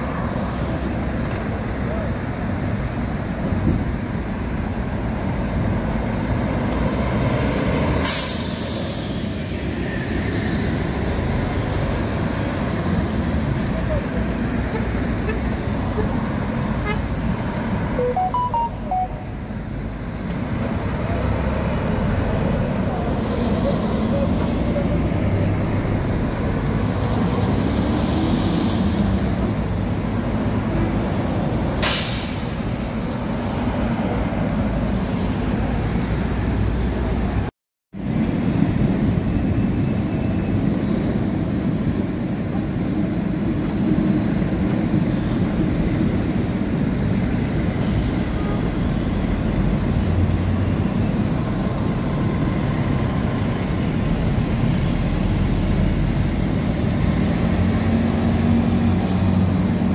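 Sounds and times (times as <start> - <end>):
bus engine rumbling: 0.0 - 59.9
air brakes hissing: 8.0 - 9.8, 31.8 - 33.0.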